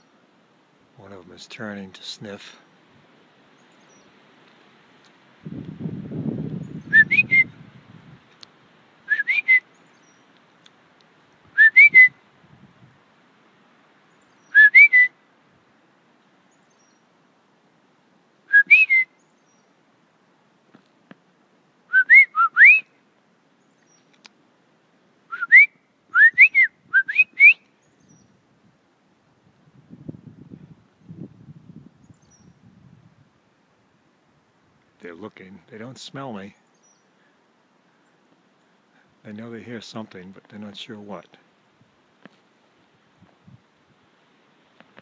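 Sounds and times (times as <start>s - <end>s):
person whistling short rising notes: 6.9s - 7.5s, 9.1s - 9.6s, 11.6s - 12.1s, 14.6s - 15.1s, 18.5s - 19.1s, 21.9s - 22.8s, 25.3s - 27.6s
low rustle: 27.6s - 45.0s.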